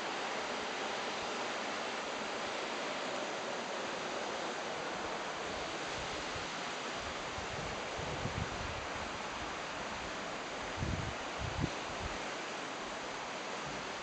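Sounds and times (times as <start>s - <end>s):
river current rushing: 0.0s - 14.0s
wind buffeting microphone: 7.1s - 9.2s, 10.7s - 12.2s.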